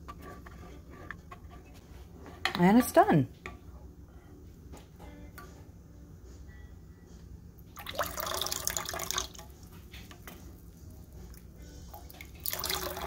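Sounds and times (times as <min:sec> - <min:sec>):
tea splashing into saucepan: 0:07.8 - 0:09.6, 0:11.9 - 0:13.0.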